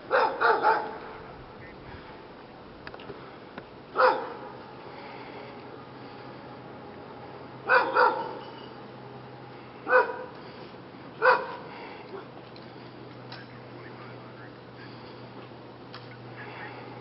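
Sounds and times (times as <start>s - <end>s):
dog barking: 0.1s - 1.0s, 4.0s - 4.5s, 7.6s - 8.4s, 9.8s - 10.3s, 11.2s - 11.7s.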